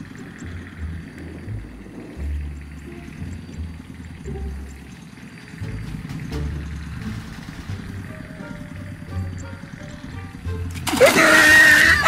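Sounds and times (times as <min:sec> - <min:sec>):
person splashing into water: 0:10.8 - 0:11.8.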